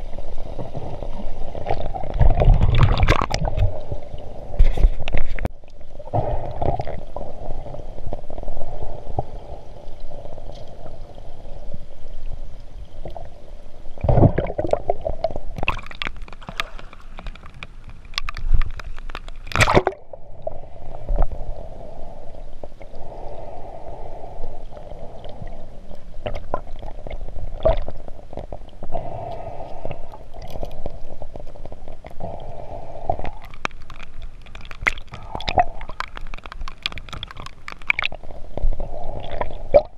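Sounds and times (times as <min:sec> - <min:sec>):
muffled underwater rush: 0:00.0 - 0:39.9
sharp knocks and crackles: 0:04.6 - 0:05.5, 0:15.2 - 0:20.0, 0:33.2 - 0:38.7.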